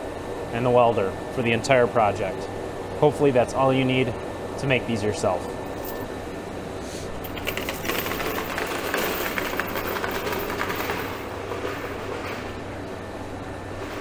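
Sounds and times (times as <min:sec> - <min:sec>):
chain rattling on concrete: 0:07.2 - 0:11.3.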